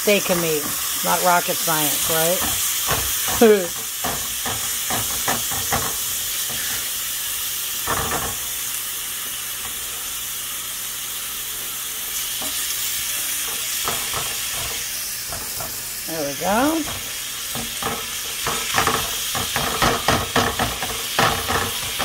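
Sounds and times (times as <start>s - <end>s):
meat sizzling in a pan: 0.0s - 22.0s
spatula scraping and tapping pan: 0.2s - 6.9s, 7.8s - 8.5s, 13.4s - 15.8s, 16.5s - 22.0s.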